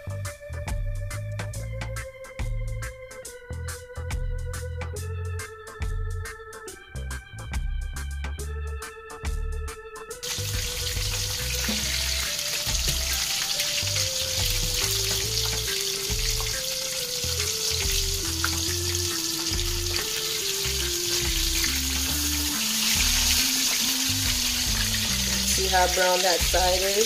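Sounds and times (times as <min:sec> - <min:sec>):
slow background music: 0:00.0 - 0:27.0
fish sizzling in oil: 0:10.2 - 0:27.0.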